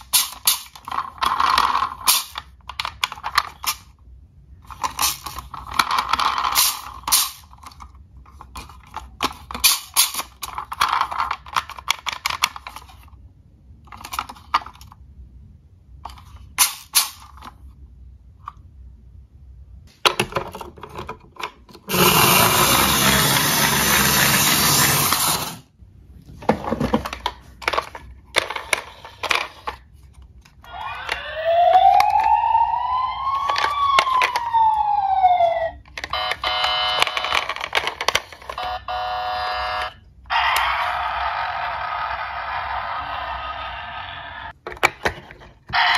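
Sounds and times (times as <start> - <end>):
plastic toys clicking and knocking: 0.0 - 4.0, 4.6 - 15.0, 19.9 - 25.6, 26.4 - 32.4, 33.2 - 34.9, 35.6 - 38.8, 44.5 - 45.9
loud burst of noise: 21.9 - 25.7
toy siren wail: 30.6 - 37.4, 38.5 - 44.5.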